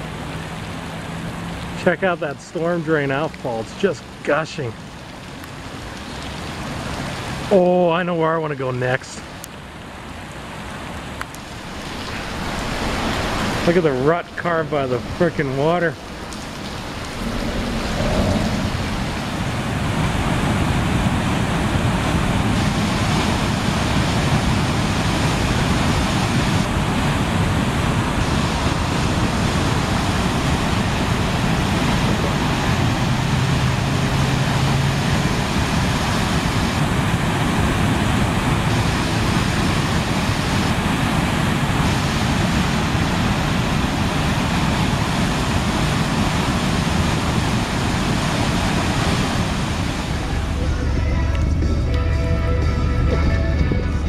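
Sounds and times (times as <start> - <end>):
floodwater gushing from drain: 0.0 - 7.7, 9.3 - 50.6.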